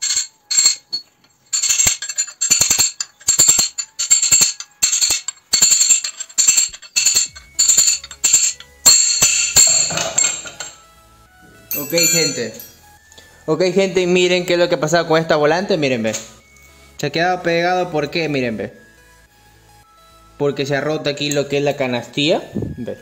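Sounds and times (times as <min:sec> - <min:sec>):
wrench striking metal flywheel: 0:00.0 - 0:10.8.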